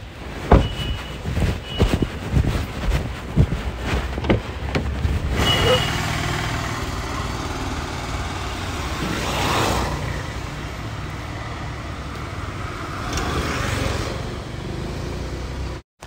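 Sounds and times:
car engine pulling away: 4.2s - 10.6s.

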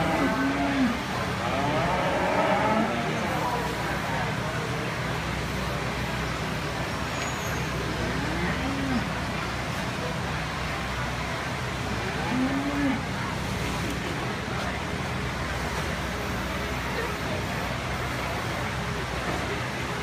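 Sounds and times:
cow mooing: 0.0s - 3.1s, 8.1s - 9.1s, 12.2s - 13.0s.

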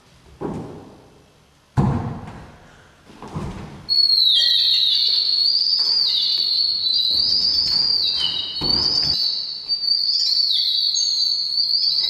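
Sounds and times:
high-pitched whistling tone: 3.9s - 12.0s.

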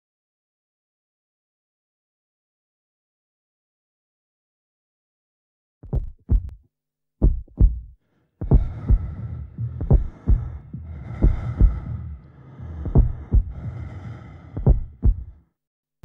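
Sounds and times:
slow heartbeat: 5.8s - 6.6s, 7.2s - 15.4s.

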